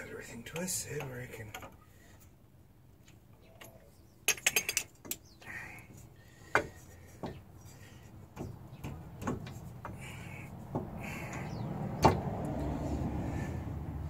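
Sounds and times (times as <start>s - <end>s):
steel parts clinking: 3.6s - 5.2s
metal knocks: 8.3s - 12.4s.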